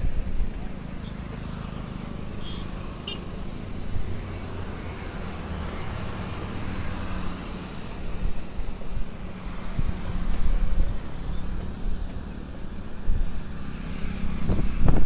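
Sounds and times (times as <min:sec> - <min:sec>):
rumble of passing vehicles: 0:00.0 - 0:15.0.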